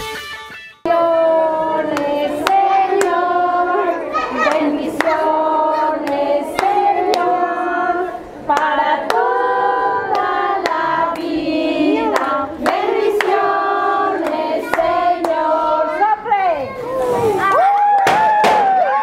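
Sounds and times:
children singing: 0.9 - 16.0
hand claps: 1.9 - 3.2, 4.5 - 5.3, 6.0 - 7.3, 10.1 - 11.3, 12.1 - 13.4.

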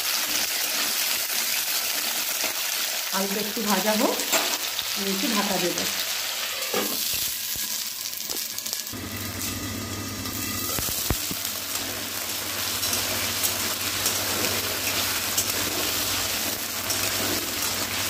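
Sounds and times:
potatoes sizzling in oil: 0.0 - 18.0
metal spatula stirring: 12.8 - 18.0.

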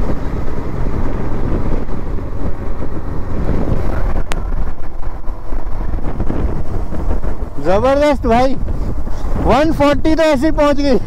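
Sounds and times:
road and engine rumble: 0.0 - 11.0
wind buffeting microphone: 0.0 - 11.0.

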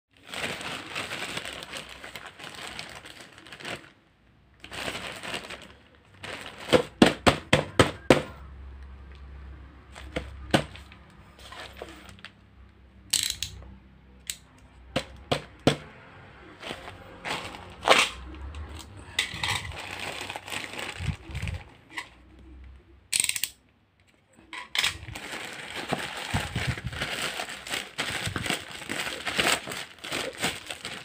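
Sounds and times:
plastic bag rustling: 0.1 - 4.0, 4.6 - 7.3, 9.9 - 12.2, 16.4 - 22.3, 24.7 - 31.0.

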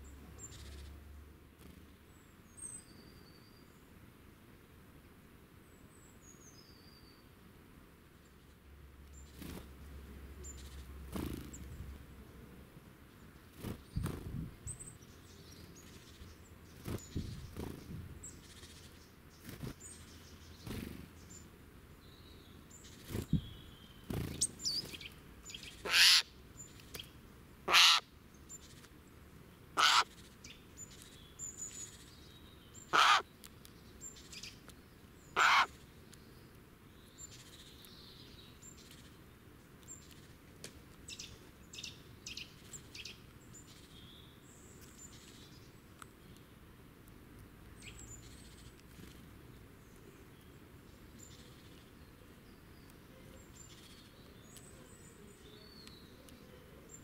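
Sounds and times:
faint small bird calls: 0.0 - 1.0, 13.2 - 29.1, 29.8 - 40.4, 47.7 - 57.0.

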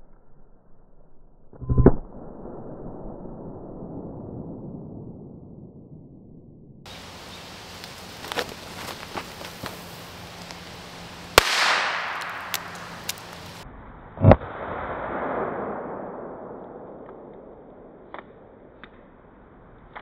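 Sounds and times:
firecracker bangs with echo: 11.3 - 13.2, 14.2 - 18.0.

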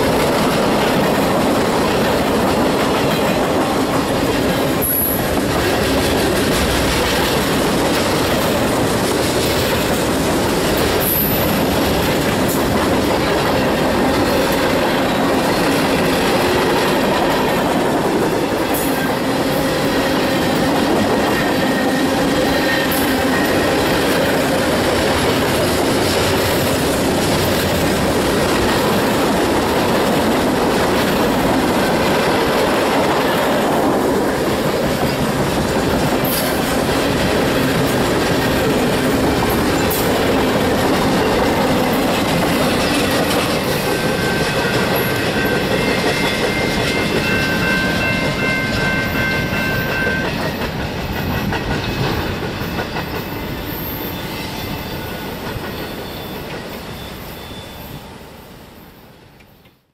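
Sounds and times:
freight train wheels rumbling: 0.0 - 59.9
faint wheel squeal: 53.8 - 58.1.

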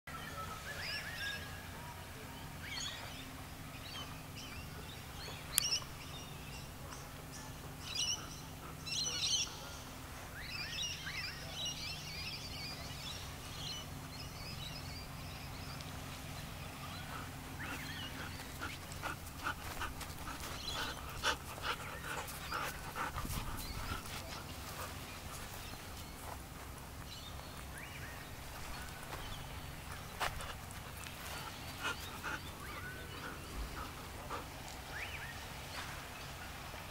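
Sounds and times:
low steady hum: 0.1 - 36.9
small birds chirping: 2.4 - 36.9
dogs panting: 6.8 - 10.3, 16.5 - 27.0, 27.6 - 35.9.

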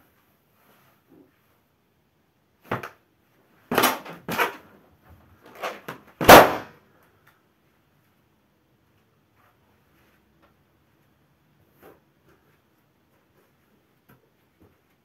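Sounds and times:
balloon bursting bang: 6.2 - 6.7.

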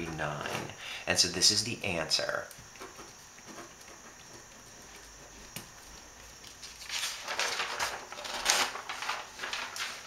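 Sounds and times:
paper rustling: 2.8 - 10.0.

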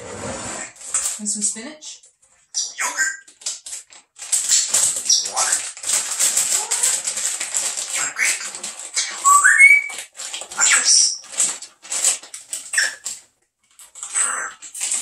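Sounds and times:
parrot chattering: 2.6 - 3.3, 4.5 - 5.8, 7.8 - 10.0, 10.6 - 11.2, 14.0 - 14.6
rising parrot whistle: 9.2 - 10.0.

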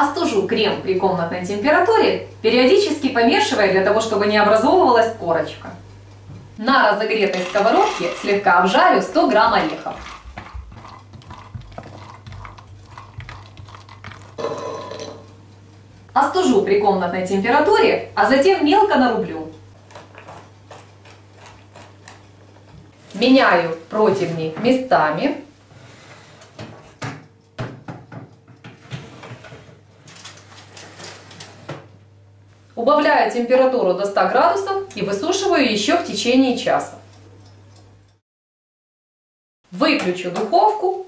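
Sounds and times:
metal baking trays scraping and knocking: 7.1 - 12.0, 28.7 - 31.8
nuts and spatula scraping a pan: 7.1 - 15.2
nuts rattling into a bowl: 7.3 - 8.4.

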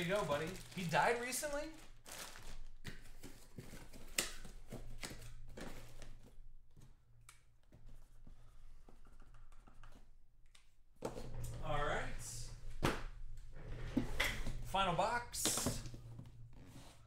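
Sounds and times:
cards and wrappers rustling: 0.0 - 6.4.

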